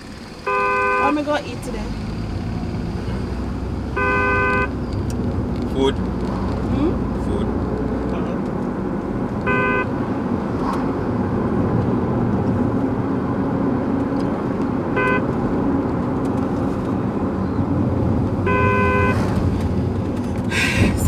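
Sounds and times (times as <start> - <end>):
car cabin road and engine noise: 0.0 - 21.0
recorded car horn honks: 0.4 - 1.4, 3.9 - 4.8, 9.4 - 10.0, 14.9 - 15.4, 18.4 - 19.4.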